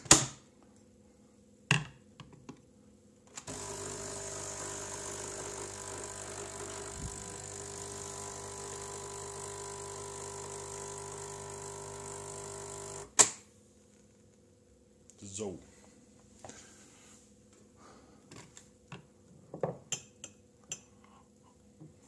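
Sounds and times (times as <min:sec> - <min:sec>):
capsule machine pump running: 0:03.5 - 0:13.1.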